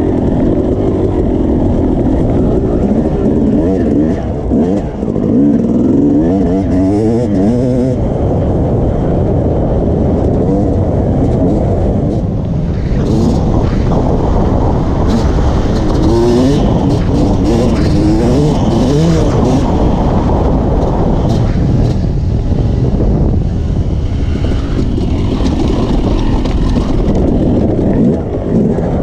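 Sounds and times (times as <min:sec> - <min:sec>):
two-stroke dirt bike engine revving: 0:00.0 - 0:08.1, 0:10.4 - 0:22.0.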